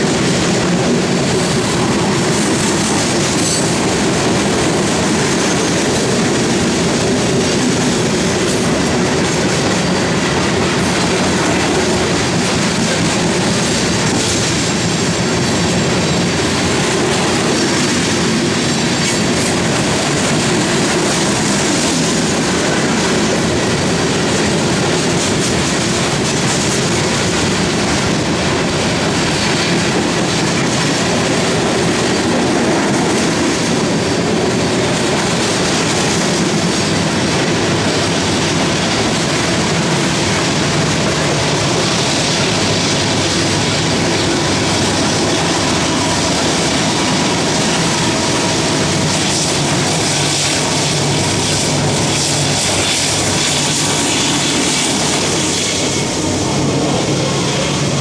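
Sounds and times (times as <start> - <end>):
freight train rolling on rails: 0.0 - 58.0.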